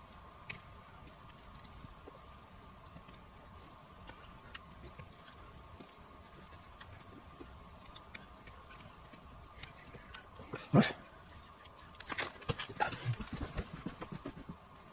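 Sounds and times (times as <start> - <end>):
faint steady hum: 0.0 - 14.9.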